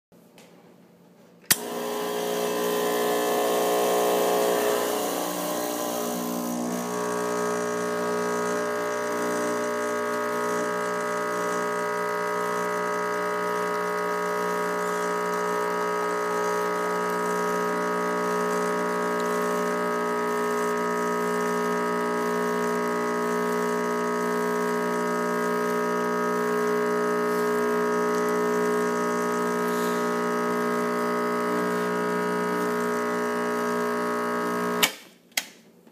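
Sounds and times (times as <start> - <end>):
espresso pump buzzing hum: 1.5 - 34.8.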